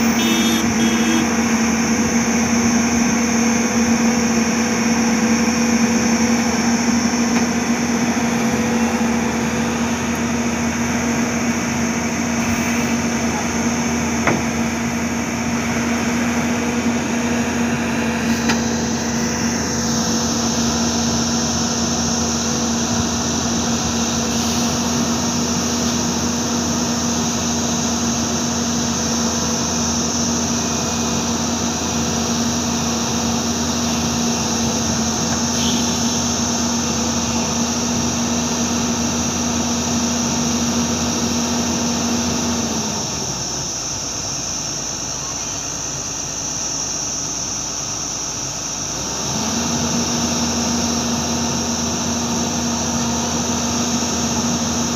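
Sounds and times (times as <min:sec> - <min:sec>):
excavator diesel engine: 0:00.0 - 0:54.9
constant high hiss: 0:43.3 - 0:49.2.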